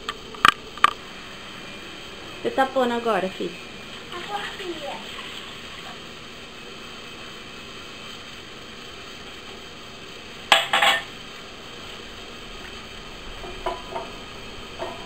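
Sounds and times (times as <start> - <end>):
kitchenware clinking on glass bowl: 10.5 - 11.1.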